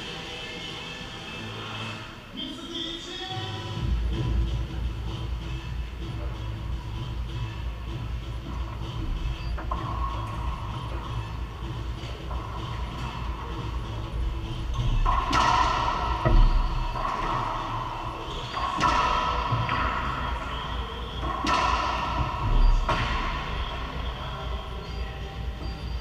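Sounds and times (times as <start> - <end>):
racquetball cracking off racquets and walls: 14.8 - 23.9.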